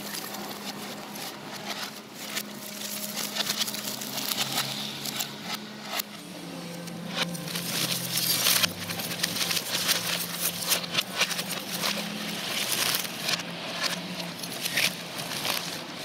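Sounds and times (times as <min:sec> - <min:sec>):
excavator engine humming: 0:00.0 - 0:16.0
wood cracking and clattering: 0:07.1 - 0:16.0.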